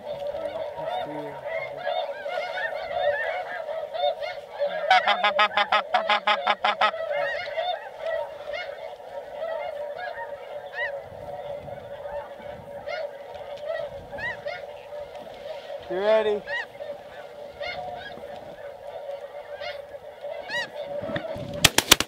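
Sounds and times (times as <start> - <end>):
loud close goose honks: 0.0 - 21.6
geese honking chorus: 0.0 - 21.7.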